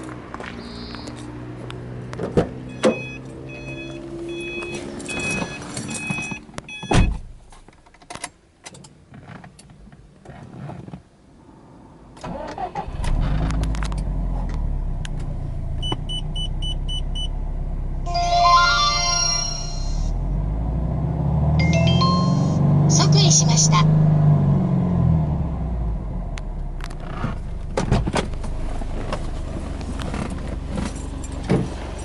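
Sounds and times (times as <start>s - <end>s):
car warning chime beeping: 0.6s - 1.1s, 2.7s - 7.2s, 15.8s - 17.3s, 21.6s - 22.6s
car engine starting and idling: 11.5s - 32.0s.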